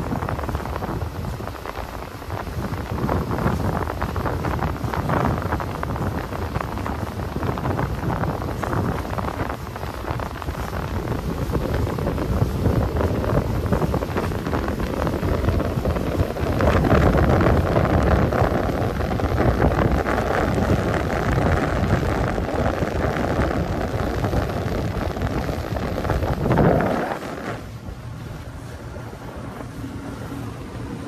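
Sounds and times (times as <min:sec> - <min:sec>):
outboard motor running: 0:00.0 - 0:31.0
water rushing past hull: 0:00.0 - 0:31.0
wind buffeting microphone: 0:00.0 - 0:31.0.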